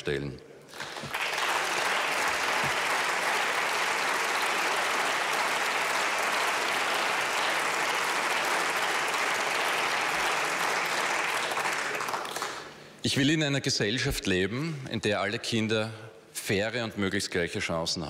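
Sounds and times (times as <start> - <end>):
crowd applauding: 0.7 - 12.8.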